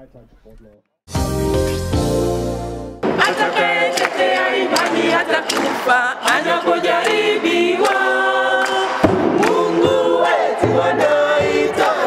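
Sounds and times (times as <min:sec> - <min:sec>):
choir singing in harmony: 0:03.0 - 0:12.0.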